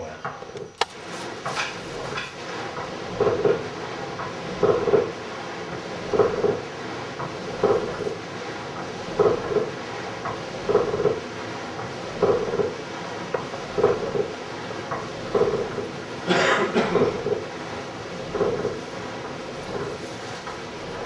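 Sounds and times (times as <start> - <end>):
forge bellows puffing air: 0.2 - 21.0.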